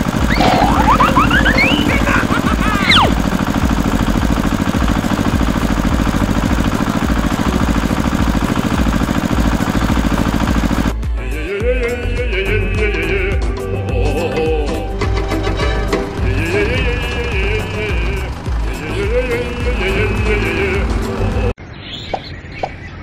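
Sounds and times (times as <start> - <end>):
rising whistle-like glides: 0.0 - 2.2
tractor engine chugging: 0.0 - 11.0, 15.2 - 21.5.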